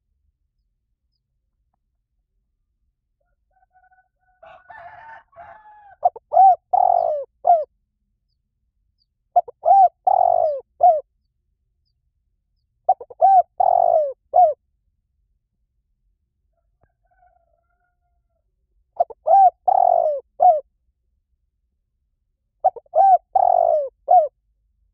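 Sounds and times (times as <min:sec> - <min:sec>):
dove cooing: 0:03.7 - 0:07.7, 0:09.4 - 0:11.1, 0:12.9 - 0:14.6, 0:19.0 - 0:20.6, 0:22.6 - 0:24.3.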